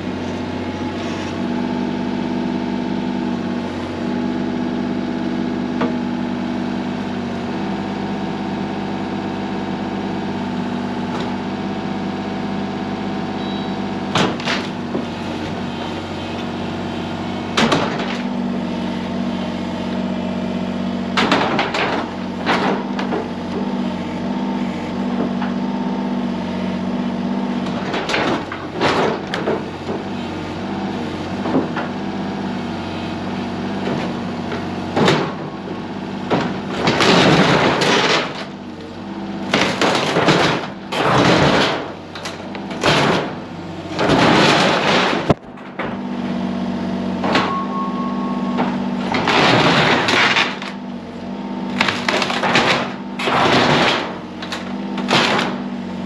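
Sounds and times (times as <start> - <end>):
excavator diesel engine running: 0.0 - 56.0
wood crashing and cracking: 14.1 - 15.1, 17.5 - 18.4, 21.1 - 25.6, 27.6 - 30.2, 31.2 - 32.1, 33.7 - 46.1, 47.2 - 47.7, 48.5 - 51.0, 51.6 - 55.8.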